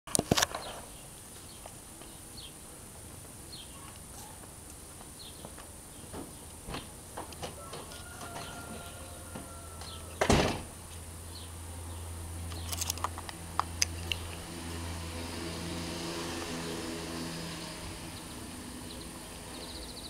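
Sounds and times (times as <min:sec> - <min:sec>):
low motor hum: 0:08.3 - 0:20.0.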